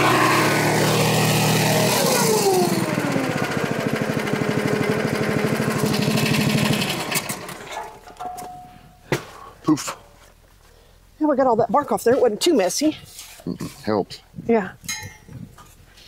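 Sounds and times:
small gas engine idling: 0:00.0 - 0:07.8.

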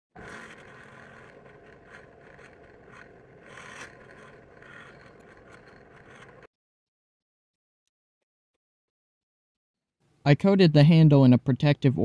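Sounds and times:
drill press whirring: 0:00.1 - 0:06.5
handle rubbing on buffing wheel: 0:00.1 - 0:06.5.

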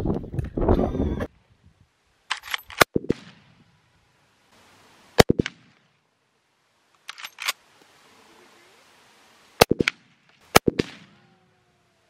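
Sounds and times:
gunshots in quick bursts: 0:09.6 - 0:11.1.

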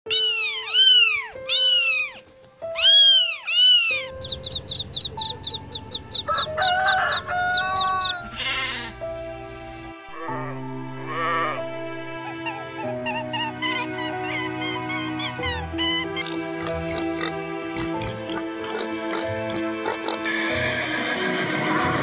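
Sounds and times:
background music: 0:00.1 - 0:22.0
chicken peeps and calls: 0:00.3 - 0:08.8
sheep bleat: 0:08.3 - 0:09.0, 0:10.1 - 0:11.8.

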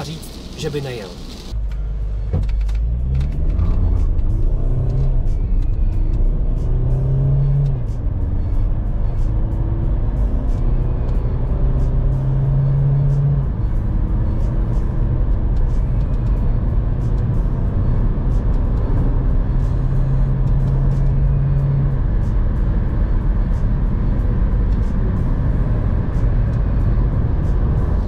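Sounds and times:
car engine accelerating: 0:00.0 - 0:28.0.

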